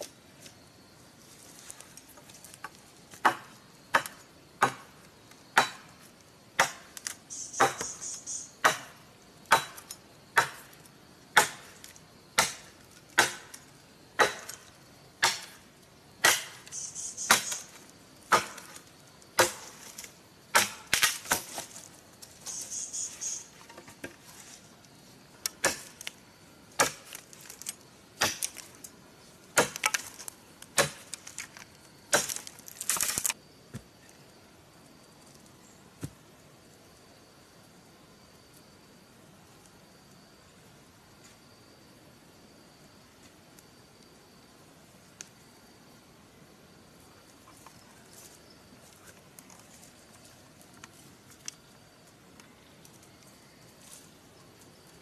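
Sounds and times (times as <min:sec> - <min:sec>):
machete chopping wood: 0:03.2 - 0:04.9, 0:05.5 - 0:05.9, 0:06.6 - 0:08.0, 0:08.6 - 0:11.8, 0:12.4 - 0:13.6, 0:14.2 - 0:15.6, 0:16.2 - 0:16.6, 0:17.3 - 0:18.8, 0:19.4 - 0:21.7, 0:25.5 - 0:26.1, 0:26.8 - 0:28.7, 0:29.5 - 0:31.5, 0:32.1 - 0:33.8.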